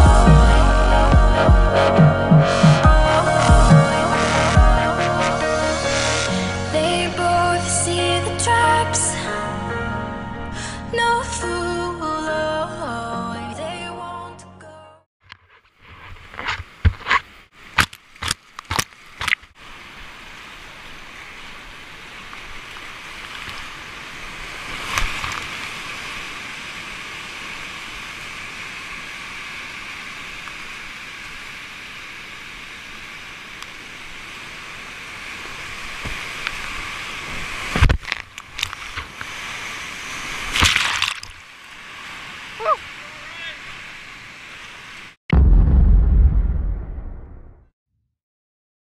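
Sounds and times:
whitewater rapids rushing: 2.5 - 7.4, 38.8 - 44.7
loud water splashes: 38.8 - 44.0.

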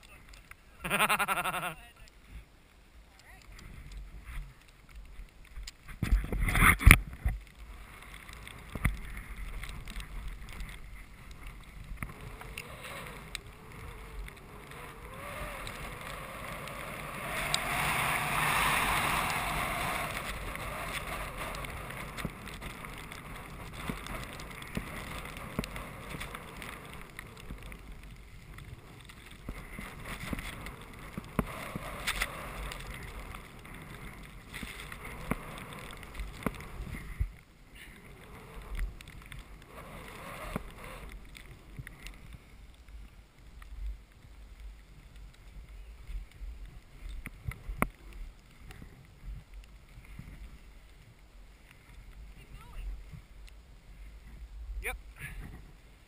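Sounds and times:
wind on microphone: 5.8 - 42.5
skis hissing through snow: 7.5 - 42.6.

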